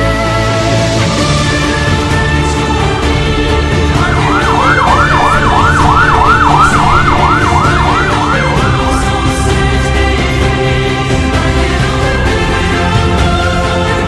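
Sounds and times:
orchestral music: 0:00.0 - 0:13.9
siren yelping: 0:03.8 - 0:09.6.

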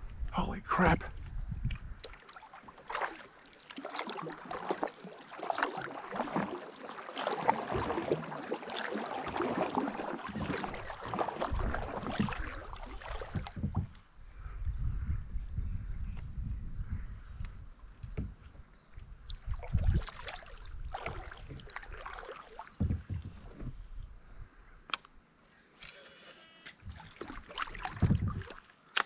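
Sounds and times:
paddle splashing in water: 0:01.6 - 0:14.0, 0:18.0 - 0:24.0, 0:26.7 - 0:29.0.

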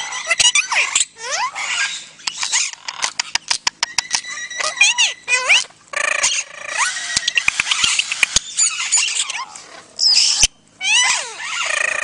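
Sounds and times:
parrots chattering: 0:00.0 - 0:12.0
parrot clicks: 0:02.2 - 0:04.8, 0:07.2 - 0:08.4.

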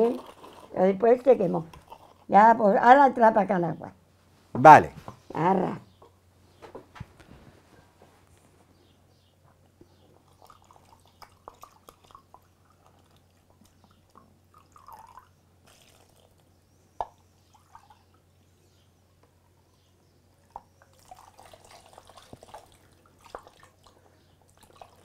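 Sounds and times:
water trickling from jug: 0:10.1 - 0:18.6, 0:20.5 - 0:25.0.

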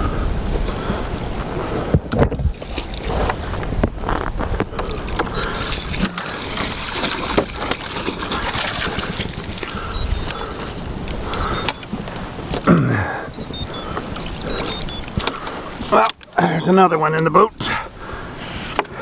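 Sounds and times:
water splashing and sloshing: 0:00.0 - 0:19.0
wind rumbling on microphone: 0:00.0 - 0:19.0
fish thrashing at surface: 0:04.8 - 0:16.3.

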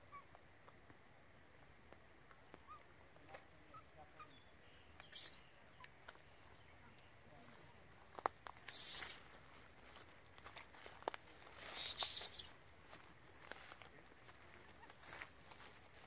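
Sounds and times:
rustling of dry leaf litter: 0:02.8 - 0:16.0
faint short chirps: 0:04.2 - 0:05.6, 0:08.6 - 0:09.2, 0:11.6 - 0:12.6.

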